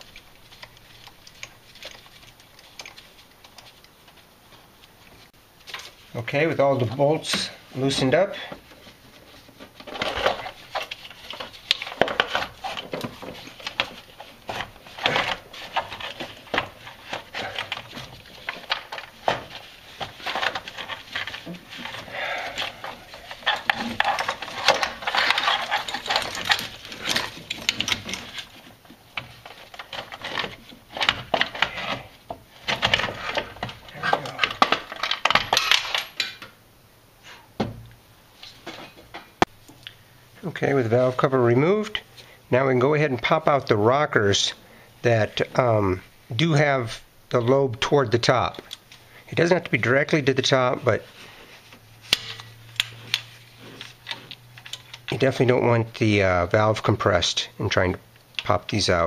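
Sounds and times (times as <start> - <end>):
metal cover clicking and scraping: 52.1 - 55.1.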